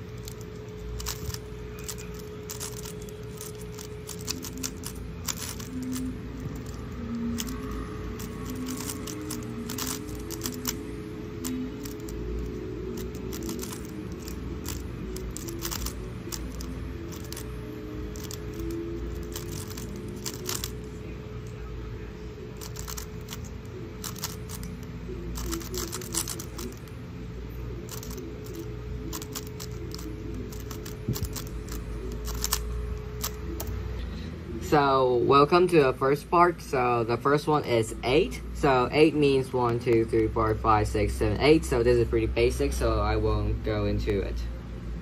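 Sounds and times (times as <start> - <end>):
faint background music: 0.0 - 45.0
speed cube plastic clicks: 0.1 - 10.8, 11.4 - 17.5, 18.1 - 20.8, 22.6 - 26.9, 27.9 - 33.7.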